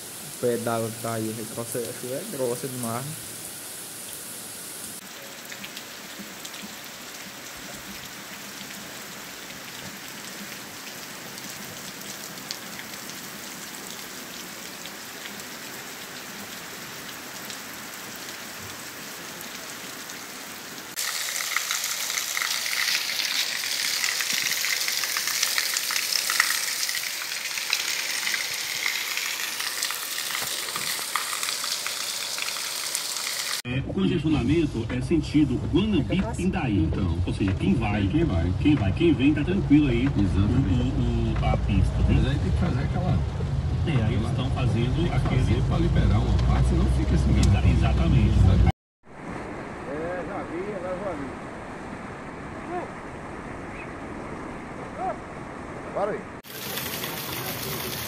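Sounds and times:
heavy rain falling: 0:00.0 - 0:33.6, 0:55.8 - 0:58.0.

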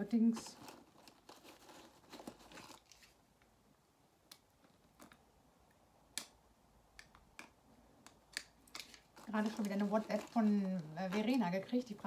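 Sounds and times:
faint sharp clicks and taps: 0:04.3 - 0:11.4.

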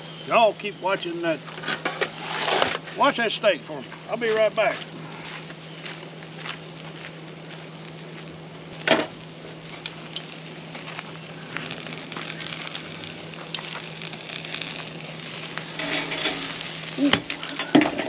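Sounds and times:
charcoal crackling: 0:00.0 - 0:18.0
steak sizzling: 0:00.0 - 0:18.0
tongs clattering on grate: 0:15.8 - 0:18.0.

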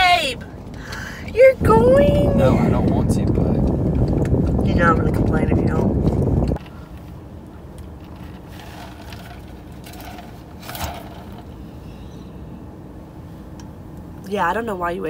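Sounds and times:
car idling hum: 0:00.0 - 0:15.0
faint clicks and rustles: 0:02.8 - 0:11.6.

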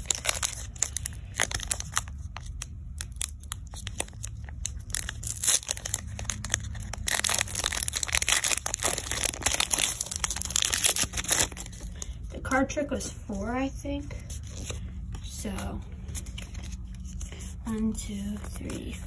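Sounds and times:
foil pack tearing and crinkling: 0:00.0 - 0:11.9.

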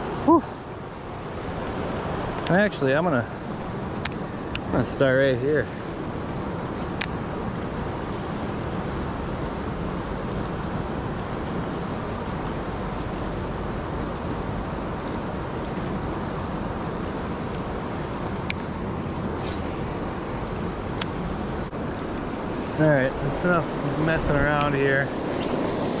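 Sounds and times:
river rapids rushing: 0:16.0 - 0:26.0.

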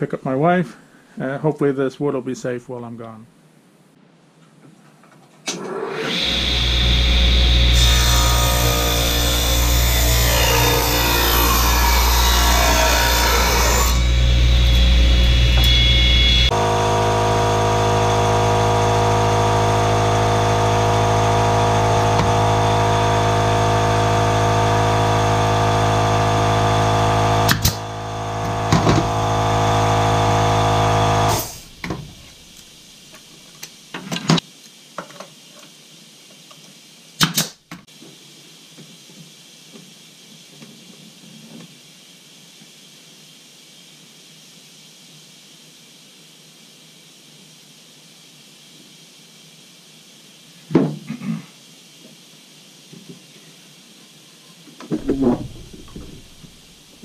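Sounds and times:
table saw cutting wood: 0:05.6 - 0:32.2
electric motor hum: 0:06.1 - 0:32.4, 0:55.0 - 0:56.8
pneumatic nailer shots: 0:27.4 - 0:29.5, 0:31.0 - 0:32.2, 0:37.2 - 0:37.6
knocks: 0:54.9 - 0:56.6.

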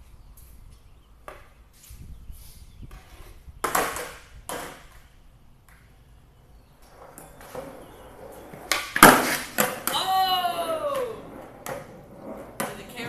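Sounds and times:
skateboard wheels rolling on concrete: 0:00.0 - 0:13.0
skateboard clacking on concrete: 0:02.9 - 0:06.0, 0:06.8 - 0:13.0.

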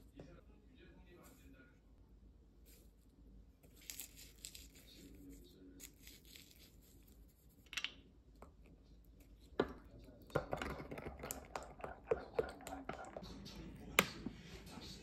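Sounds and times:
sesame seeds crackling rustle: 0:03.6 - 0:07.6.

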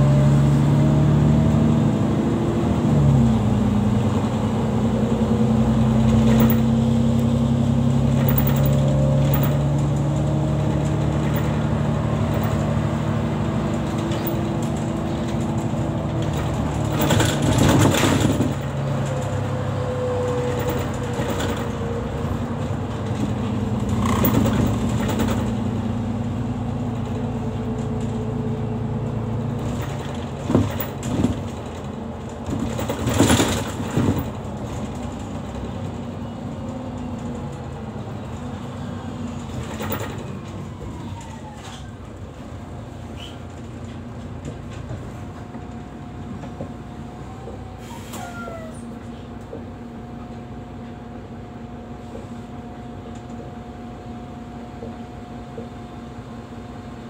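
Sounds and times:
bus engine and road noise: 0:00.0 - 0:57.0
knocks and rattles: 0:06.0 - 0:06.9, 0:08.0 - 0:12.9, 0:13.6 - 0:19.5, 0:22.8 - 0:25.8, 0:29.6 - 0:35.7.

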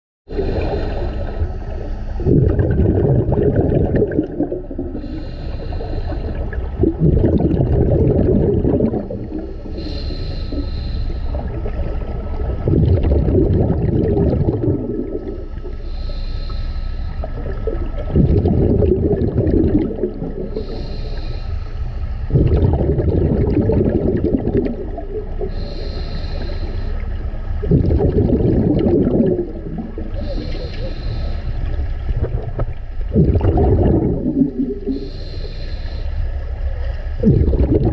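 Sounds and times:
underwater exhale bubbling: 0:00.3 - 0:21.4, 0:22.2 - 0:37.9
regulator hiss: 0:05.0 - 0:06.6, 0:09.1 - 0:11.6, 0:15.2 - 0:17.6, 0:20.5 - 0:22.3, 0:25.4 - 0:27.6, 0:30.1 - 0:32.0, 0:34.8 - 0:37.2.

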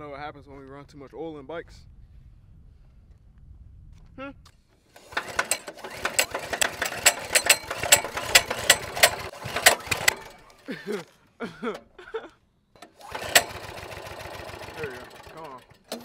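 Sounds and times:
small engine pull-starting and popping: 0:04.5 - 0:12.0, 0:12.8 - 0:16.0.

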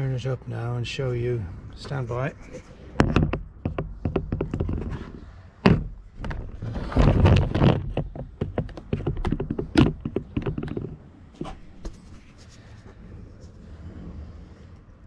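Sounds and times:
metal scraping: 0:02.0 - 0:03.3
metal knocks and clicks: 0:02.4 - 0:12.0
heavy metal clunk: 0:02.9 - 0:10.8.

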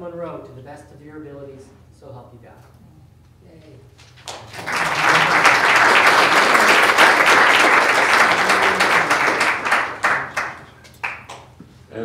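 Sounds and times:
audience applauding: 0:04.1 - 0:11.5.

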